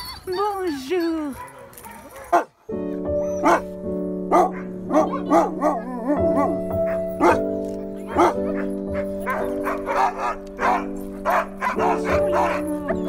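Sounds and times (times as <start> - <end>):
dogs barking and yipping: 0.0 - 13.0
background music with held chords: 2.7 - 13.0.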